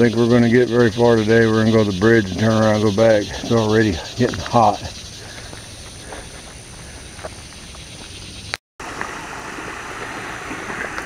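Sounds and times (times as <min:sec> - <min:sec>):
creek rushing: 0:08.8 - 0:11.0
water gushing: 0:08.8 - 0:11.0.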